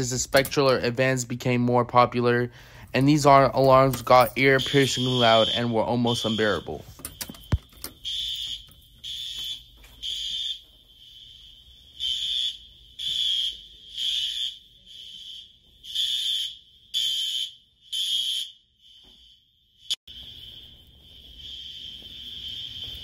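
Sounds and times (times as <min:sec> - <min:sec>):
loud high-pitched alarm horn: 0:04.4 - 0:11.4, 0:12.0 - 0:23.0
fire alarm pull station click: 0:06.2 - 0:10.6.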